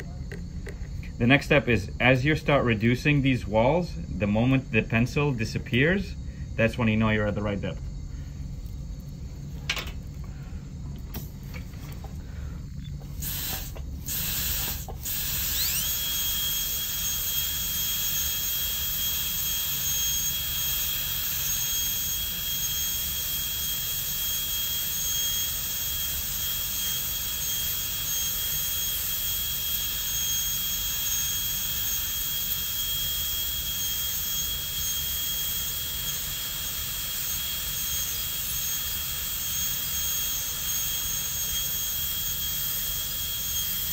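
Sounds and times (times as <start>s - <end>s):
dental drill whining: 12.9s - 43.9s.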